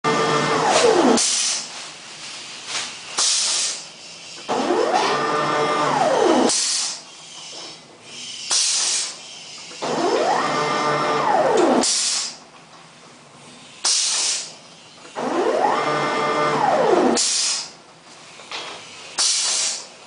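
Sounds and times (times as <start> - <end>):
stepper motor whine: 0.0 - 1.5, 4.4 - 6.8, 9.8 - 12.1, 15.2 - 17.6
compressed air hisses: 1.2 - 1.7, 2.4 - 4.4, 6.5 - 7.2, 8.1 - 9.8, 11.8 - 12.4, 13.4 - 14.9, 17.2 - 20.0.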